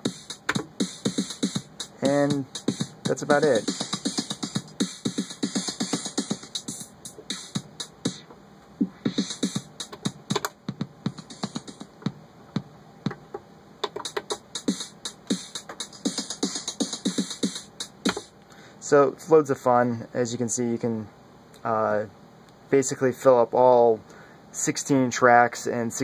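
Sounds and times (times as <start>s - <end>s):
hi-hat hiss: 0.0s - 13.2s, 13.9s - 19.2s
drum machine pattern: 0.0s - 18.4s.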